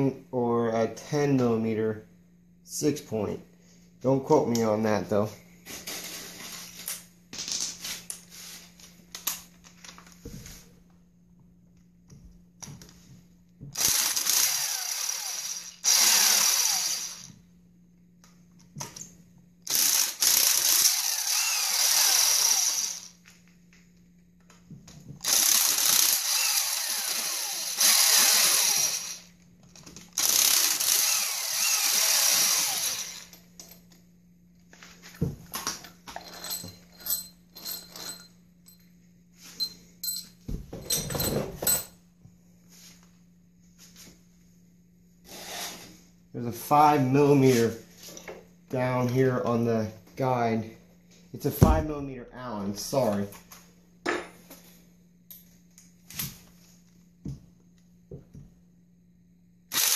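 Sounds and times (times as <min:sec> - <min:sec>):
power tool spinning out bolts: 0:13.8 - 0:17.3, 0:19.7 - 0:23.2, 0:25.2 - 0:29.3, 0:30.1 - 0:33.5, 0:36.1 - 0:38.3.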